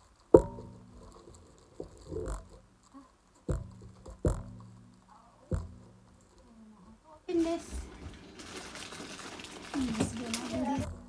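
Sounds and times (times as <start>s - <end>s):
plastic bag rustling: 7.3s - 10.9s.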